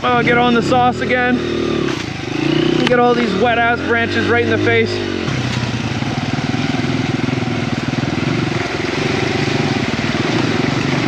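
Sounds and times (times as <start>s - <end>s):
dirt bike engine running: 0.0s - 11.0s
bike riding through slush and water: 4.8s - 11.0s.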